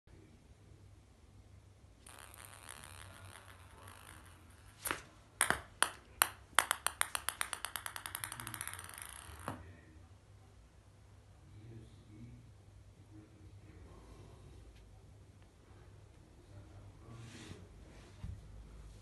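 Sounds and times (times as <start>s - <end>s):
small ball bouncing on hard floor: 2.0s - 9.6s.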